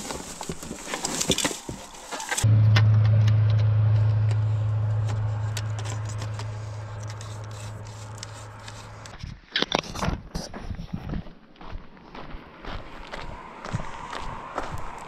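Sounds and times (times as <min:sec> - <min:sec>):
steady low hum: 0:02.4 - 0:09.2
fishing rod clicks and scrapes: 0:05.5 - 0:10.1.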